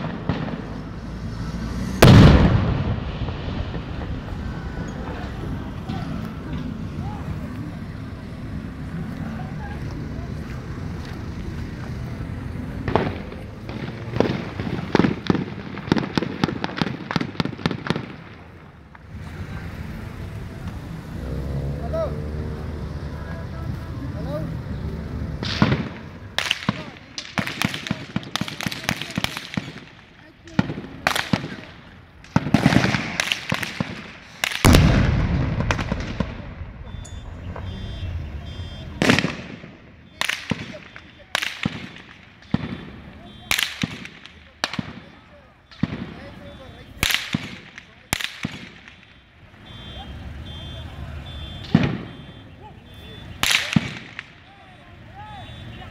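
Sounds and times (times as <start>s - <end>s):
gunshots: 0.0s - 6.7s, 12.8s - 18.8s, 25.3s - 54.6s
low vehicle rumble: 0.0s - 28.5s, 29.6s - 41.4s
heavy bang: 1.9s - 7.2s, 34.6s - 41.0s.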